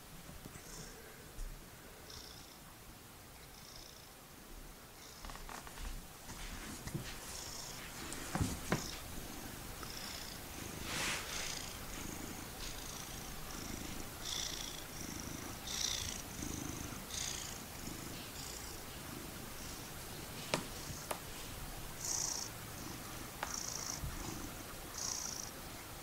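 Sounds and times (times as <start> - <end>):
cat purring: 6.6 - 25.5.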